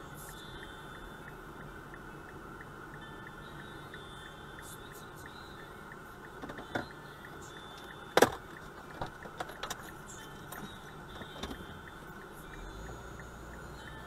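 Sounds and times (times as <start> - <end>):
car road and engine noise: 0.0 - 14.0
clicks and knocks in car cabin: 6.4 - 7.0, 7.8 - 9.9, 10.5 - 11.7.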